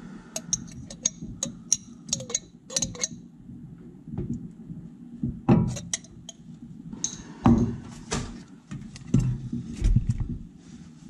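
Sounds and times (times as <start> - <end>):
spoon scraping glass bowl: 0.4 - 3.2, 5.7 - 6.4.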